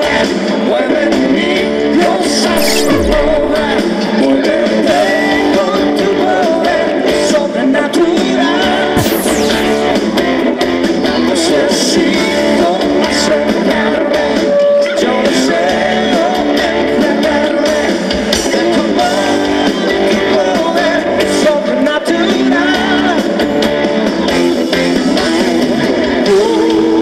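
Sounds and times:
drums: 9.0s - 10.2s.

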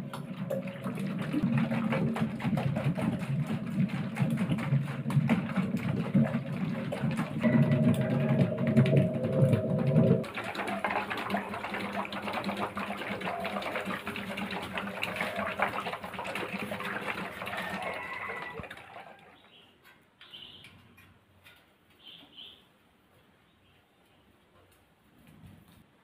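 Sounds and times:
low motor hum: 0.0s - 15.6s.

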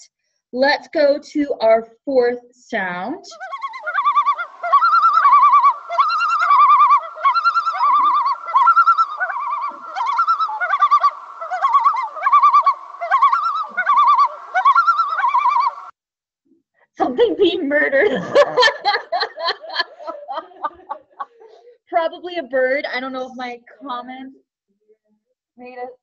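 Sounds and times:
loon tremolo call: 3.3s - 15.9s.

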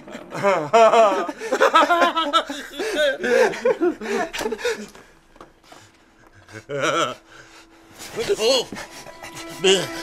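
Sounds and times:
man laughing hard: 0.2s - 4.9s.

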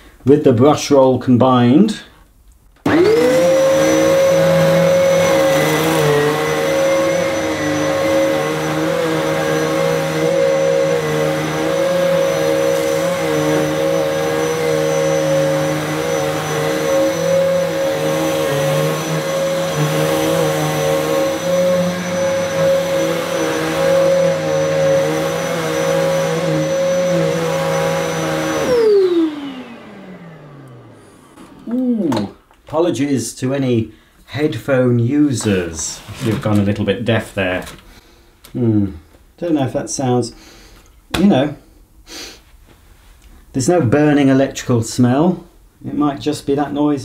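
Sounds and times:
vacuum cleaner running on carpet: 2.9s - 32.4s
vacuum motor winding down: 2.9s - 32.5s.

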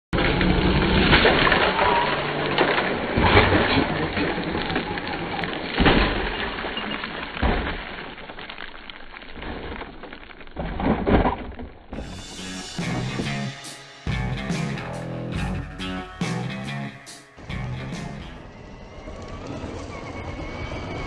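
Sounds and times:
toy truck crashing on gravel: 0.2s - 12.0s.

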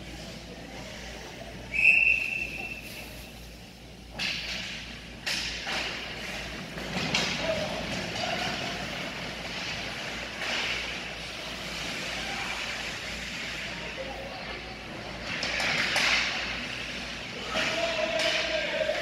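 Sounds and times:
skates scraping on ice: 5.5s - 19.0s.

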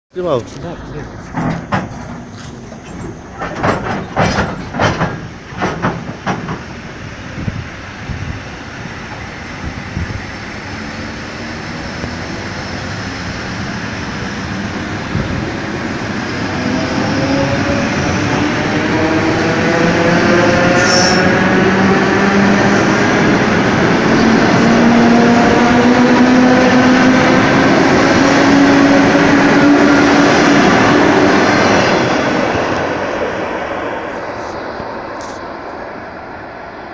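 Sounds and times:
electric train passing: 0.2s - 36.9s
high squeal: 20.8s - 21.4s.

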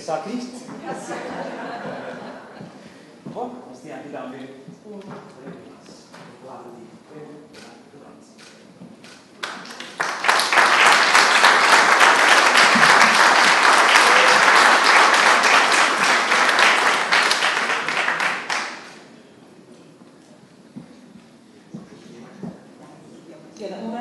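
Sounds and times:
audience applauding: 9.4s - 19.1s.

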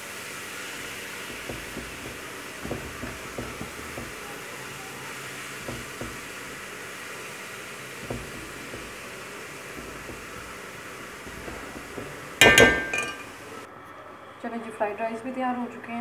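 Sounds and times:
frying hiss: 0.0s - 13.7s
spatula scraping metal pot: 0.8s - 6.8s, 7.8s - 13.4s.

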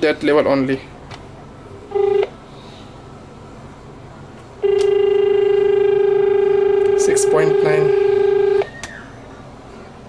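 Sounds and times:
low dial tone: 1.9s - 2.3s, 4.6s - 8.7s
short telephone tone: 4.6s - 8.7s.

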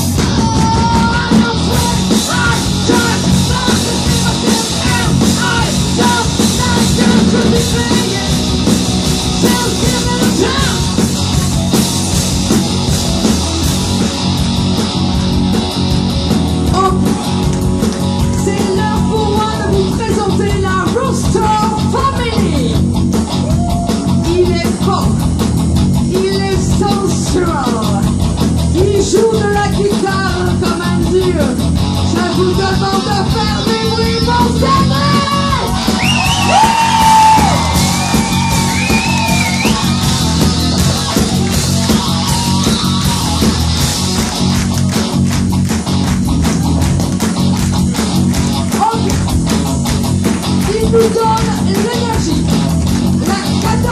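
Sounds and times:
rock band playing: 0.0s - 53.9s
woman singing: 9.4s - 10.9s.

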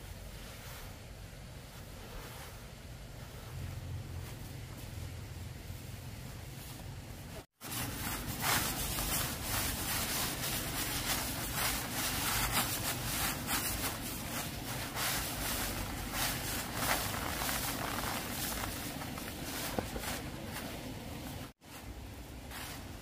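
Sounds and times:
feet crunching dry straw: 7.5s - 20.9s
plastic tarp crinkling: 7.5s - 21.6s.

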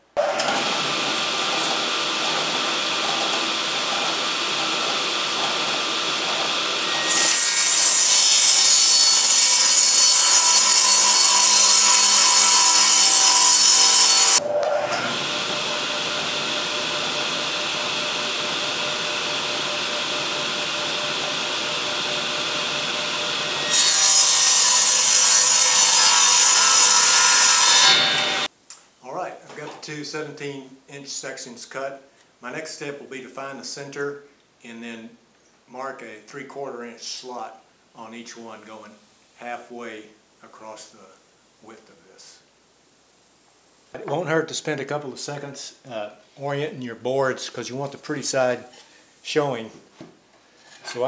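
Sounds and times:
table saw cutting plywood: 0.2s - 28.5s.

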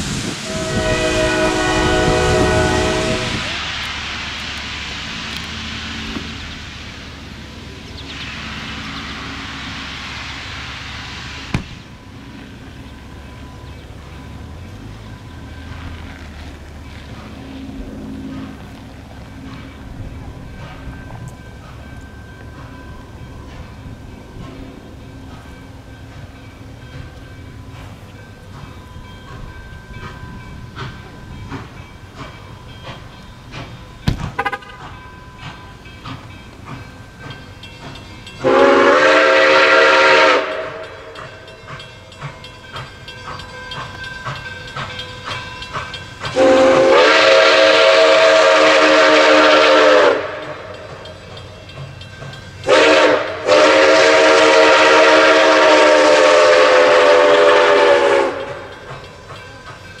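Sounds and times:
steam locomotive rumble and hiss: 0.0s - 60.0s
steam whistle blasts: 0.1s - 3.8s, 34.4s - 34.9s, 38.4s - 41.1s, 46.3s - 50.7s, 52.6s - 58.7s.

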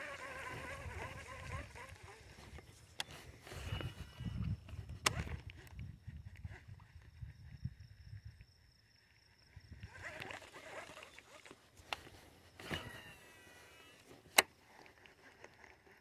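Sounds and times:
reel click: 0.0s - 5.9s, 9.8s - 16.0s
fishing reel spool whirring: 0.0s - 16.0s.

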